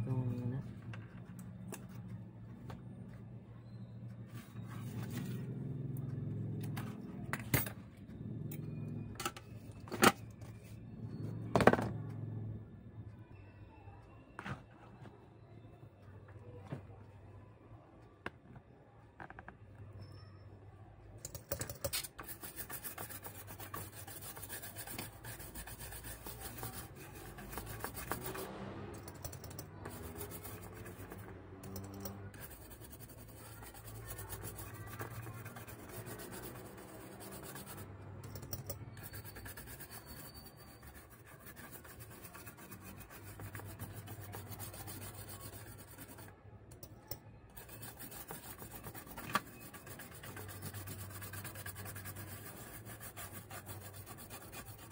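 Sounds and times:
brush scrubbing circuit board: 21.9s - 46.3s, 47.5s - 54.9s.

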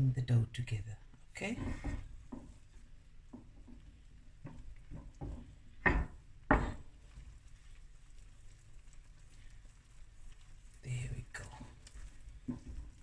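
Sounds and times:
hands squishing dough: 1.3s - 13.0s
bowl knocking on wooden board: 4.5s - 6.9s.

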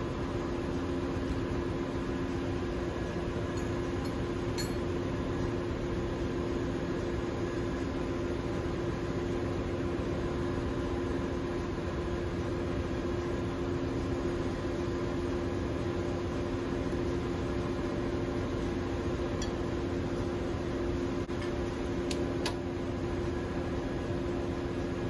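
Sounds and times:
constant low hum: 0.0s - 25.0s.

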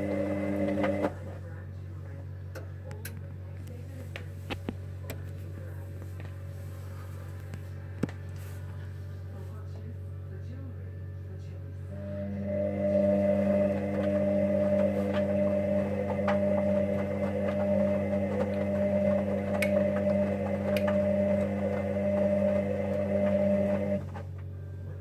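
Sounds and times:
washing machine humming: 0.0s - 2.8s, 11.6s - 25.0s.

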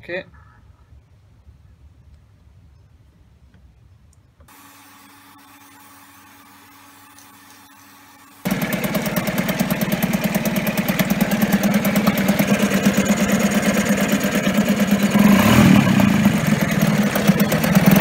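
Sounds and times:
outboard motor running: 4.5s - 18.0s.

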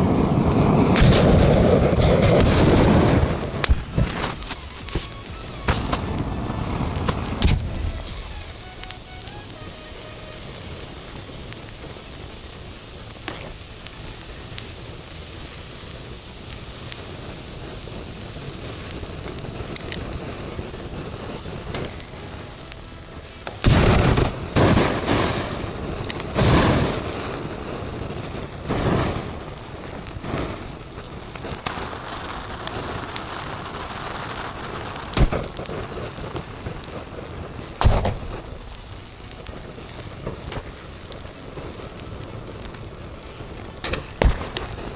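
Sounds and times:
gas lighters burning with a hiss: 0.0s - 44.9s
lighters bursting with loud bangs: 0.0s - 44.9s
whoosh of gas flame: 0.0s - 44.9s.

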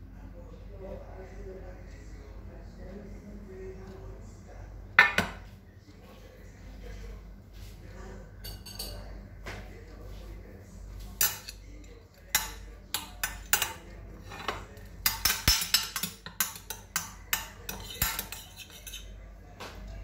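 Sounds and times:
metal spoon clinking on glass dish: 8.4s - 9.0s, 11.2s - 11.6s, 12.4s - 19.1s.

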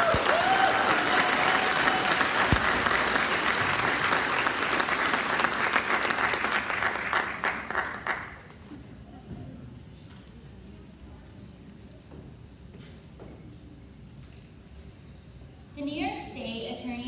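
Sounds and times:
cheering whoops: 0.0s - 3.2s
audience applauding: 0.0s - 8.6s.

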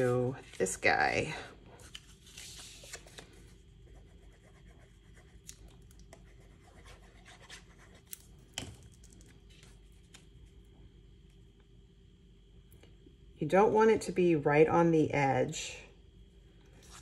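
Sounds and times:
paper scraping on surface: 1.9s - 3.3s.

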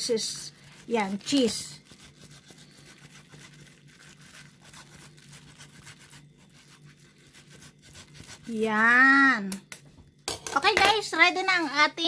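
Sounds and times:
grated cheese rustling: 0.0s - 9.2s
low steady hum: 0.0s - 12.0s.

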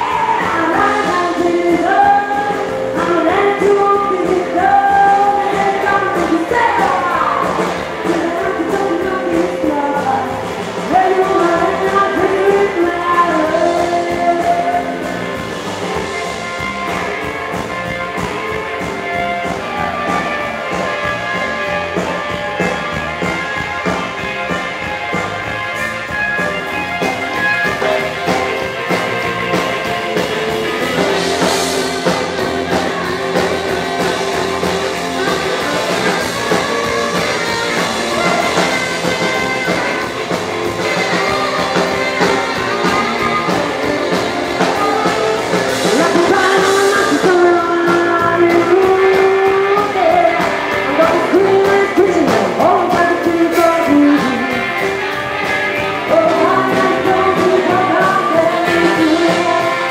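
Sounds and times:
woman singing: 0.0s - 15.4s, 40.8s - 54.9s, 55.8s - 59.9s
drums: 0.0s - 59.9s
electric guitar: 0.0s - 59.9s
saxophone: 0.0s - 59.9s.

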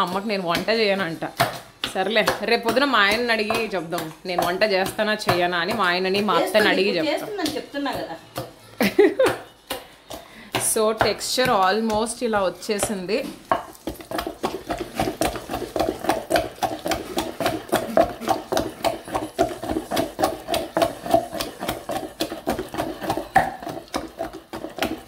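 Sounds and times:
pestle pounding in stone mortar: 0.0s - 25.0s.

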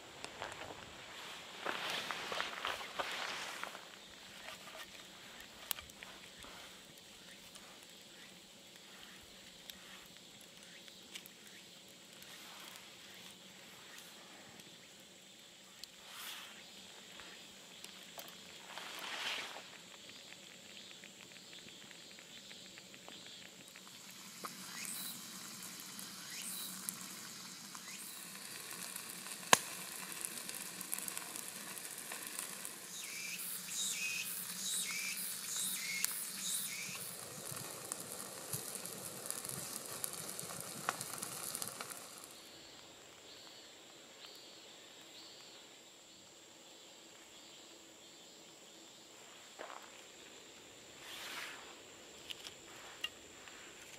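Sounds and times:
charcoal crackling: 0.1s - 14.9s, 15.6s - 42.8s
fish sizzling in a skillet: 23.2s - 42.6s.

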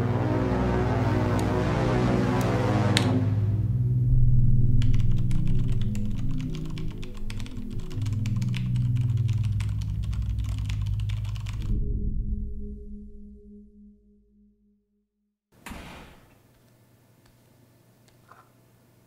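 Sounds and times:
low background music: 0.0s - 14.1s
rapid typing on keyboard: 4.8s - 11.7s.

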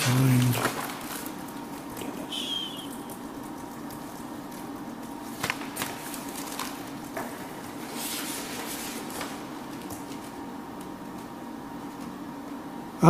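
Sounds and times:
page being turned: 0.0s - 4.3s, 5.0s - 10.4s
paper rustling: 0.0s - 11.3s
low room hum: 0.0s - 13.0s.

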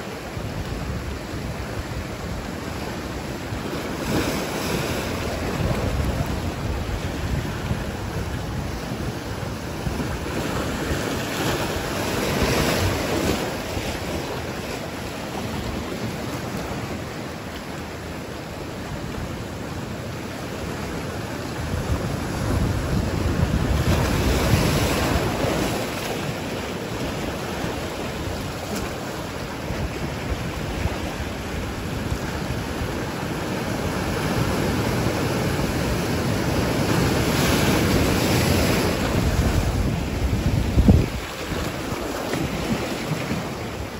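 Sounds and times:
surf breaking on rocks: 0.0s - 18.0s, 20.9s - 43.9s
wind buffeting microphone: 0.3s - 17.0s, 21.4s - 43.9s.

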